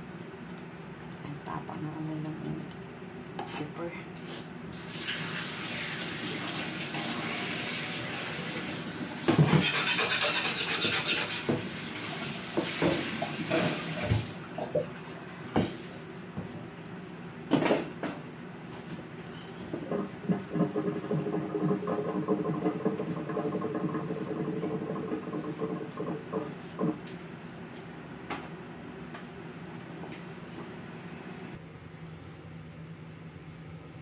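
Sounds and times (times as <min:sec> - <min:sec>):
knocks and clatters at sink: 0:09.3 - 0:09.8, 0:12.6 - 0:14.2, 0:19.8 - 0:27.0.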